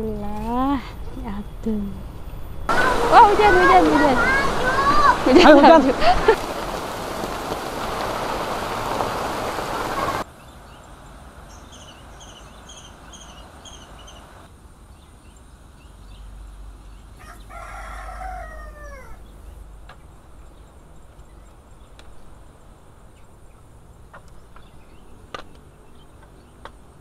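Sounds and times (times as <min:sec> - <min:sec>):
rooster crowing: 0:02.7 - 0:05.3, 0:17.2 - 0:19.3
heavy rain hissing: 0:02.7 - 0:14.6.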